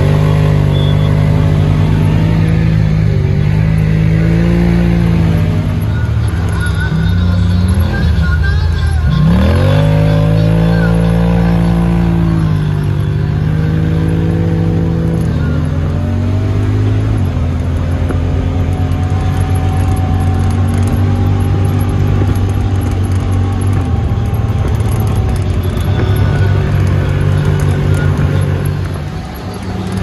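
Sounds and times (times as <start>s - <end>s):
utility vehicle engine running: 0.0s - 30.0s.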